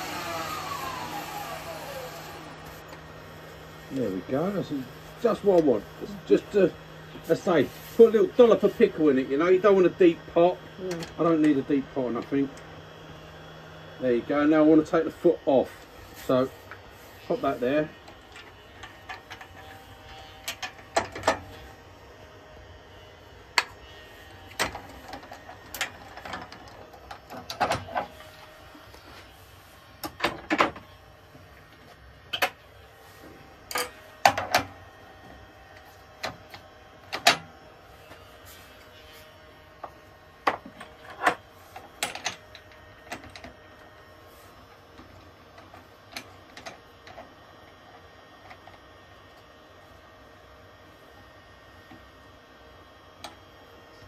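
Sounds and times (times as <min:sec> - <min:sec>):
clicks and knocks of tools: 0:18.0 - 0:21.5, 0:24.5 - 0:28.4, 0:31.6 - 0:32.6, 0:33.6 - 0:34.8, 0:35.7 - 0:37.5, 0:39.8 - 0:43.6, 0:45.0 - 0:47.3.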